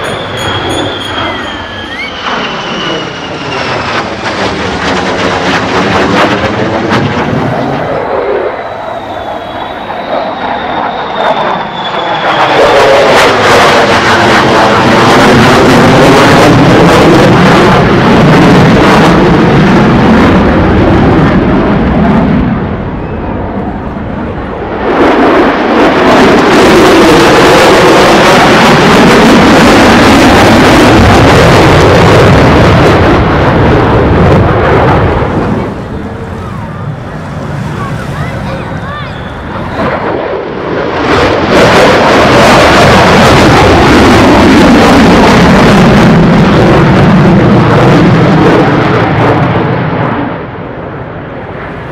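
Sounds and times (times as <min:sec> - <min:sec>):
thin high whine: 0:00.0 - 0:03.6
jet fighters flying overhead: 0:00.0 - 0:51.9.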